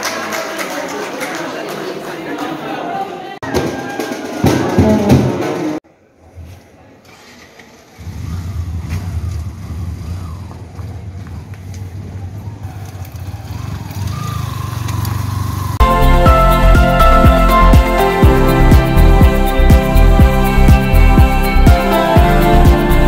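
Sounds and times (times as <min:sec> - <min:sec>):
crowd noise: 0:00.0 - 0:23.0
motorcycle engine rumbling: 0:07.8 - 0:15.8
wedding hall music: 0:15.8 - 0:23.0.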